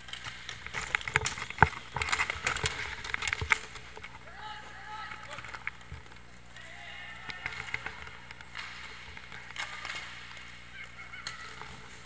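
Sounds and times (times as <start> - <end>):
stick and puck clacks: 0.0 - 4.2, 5.1 - 12.0
players shouting: 4.2 - 5.6, 6.5 - 8.3.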